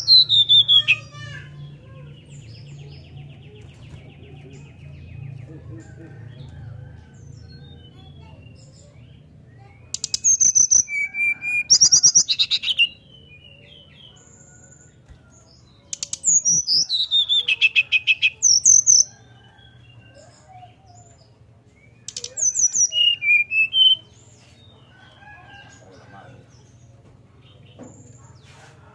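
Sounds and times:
bird singing whistled song: 22.1 - 24.1.

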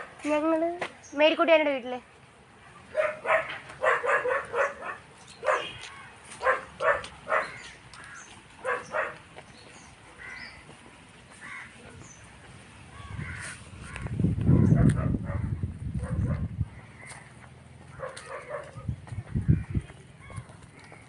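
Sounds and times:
crows cawing: 7.3 - 9.2, 10.2 - 10.7, 11.3 - 11.8, 12.9 - 14.1, 16.8 - 18.7, 19.4 - 21.0.

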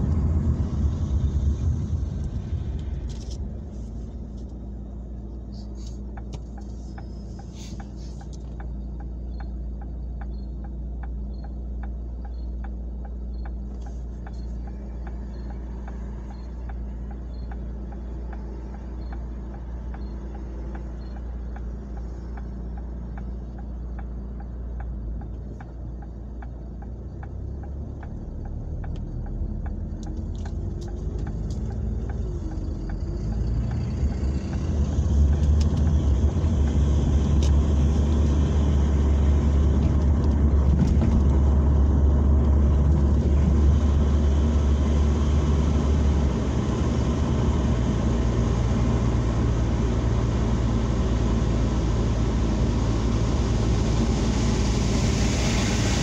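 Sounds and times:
car engine idling: 0.0 - 56.0
engine and tyre rumble: 0.0 - 56.0
light regular ticking: 2.8 - 40.7.

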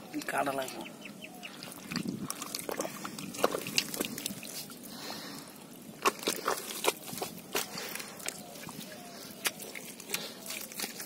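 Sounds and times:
muddy water sloshing: 0.0 - 11.0
wet slaps and splashes: 1.8 - 4.8, 6.0 - 8.8, 9.4 - 11.0.

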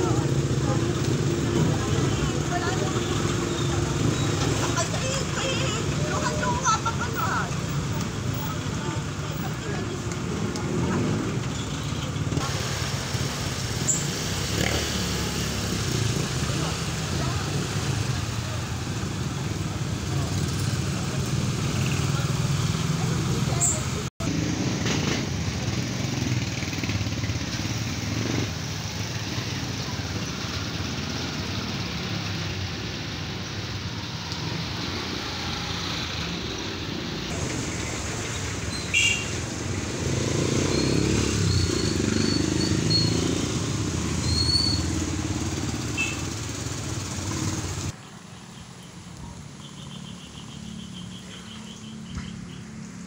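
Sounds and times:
rain on wet street: 0.0 - 49.6
vehicles passing on wet road: 0.0 - 53.0.

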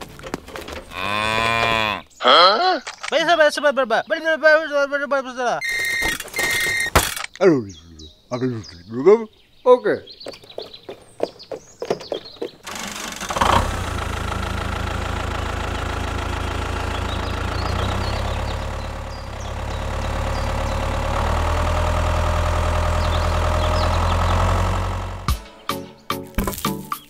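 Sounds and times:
tractor engine running: 0.0 - 1.6, 5.6 - 7.3, 12.6 - 25.4
engine starter clunk: 5.6 - 7.4, 12.6 - 25.3.

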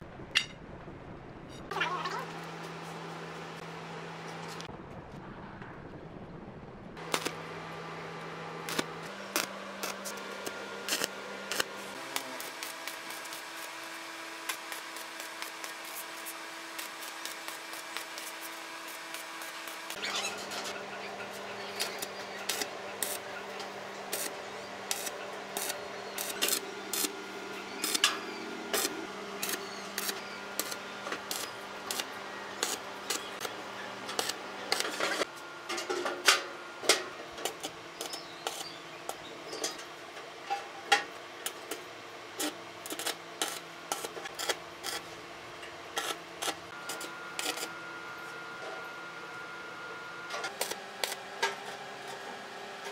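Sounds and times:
steady hum: 0.0 - 52.9
welding arc crackling and popping: 4.4 - 35.3, 37.4 - 39.2, 41.4 - 45.1, 45.9 - 47.7, 50.5 - 52.2.

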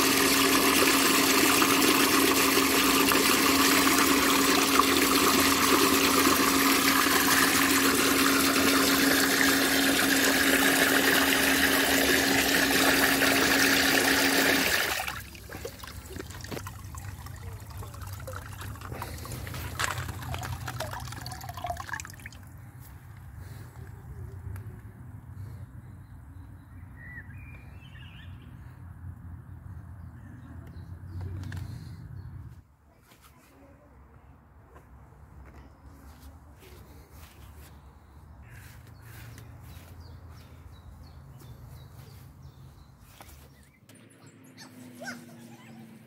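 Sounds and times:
water gushing into plastic tub: 0.0 - 22.5
pump humming: 0.0 - 22.6
water trickling and bubbling: 0.0 - 22.6.

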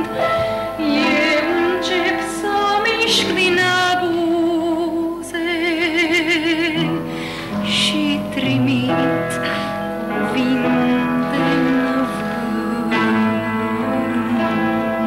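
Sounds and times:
instrumental accompaniment: 0.0 - 15.0
woman singing with vibrato: 0.0 - 15.0.

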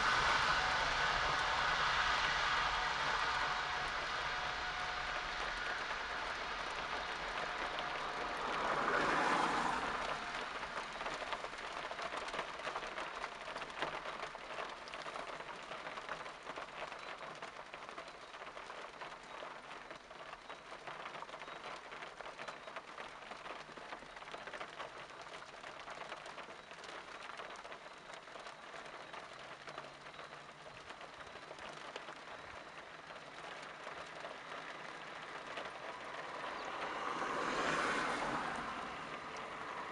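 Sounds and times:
jet engines at takeoff power: 0.0 - 11.9
heavy rain hiss: 0.0 - 39.9.

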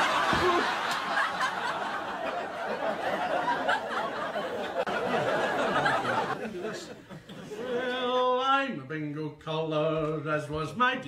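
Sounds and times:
audience laughing: 0.0 - 8.0.

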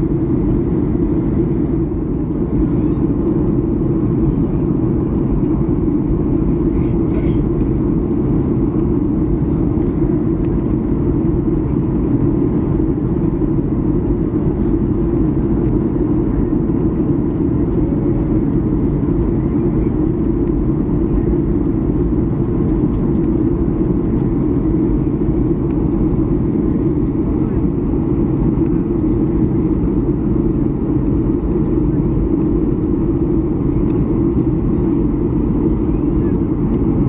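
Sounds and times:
low rumble of vehicle: 0.0 - 37.0.

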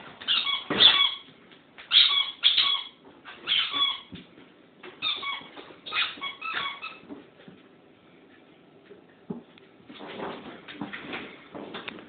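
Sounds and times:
squeaky dog toy: 0.3 - 1.3, 1.9 - 4.1, 5.0 - 7.0.

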